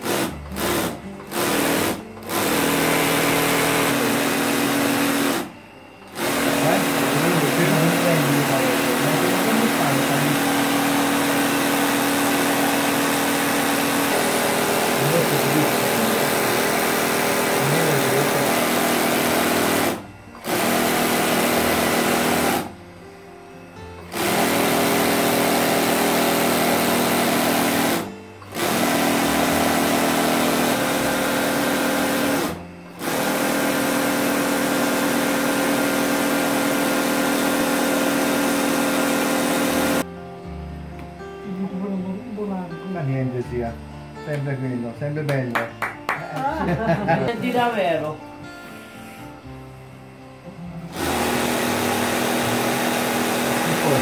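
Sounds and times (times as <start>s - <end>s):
sewing machine humming: 0.0s - 22.8s, 24.0s - 40.1s, 50.9s - 54.0s.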